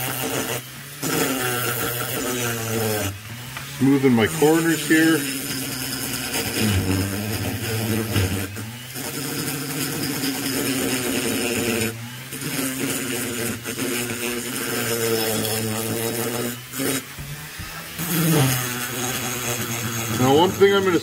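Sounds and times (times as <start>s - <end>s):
rotary tool grinding metal: 0.0s - 21.0s.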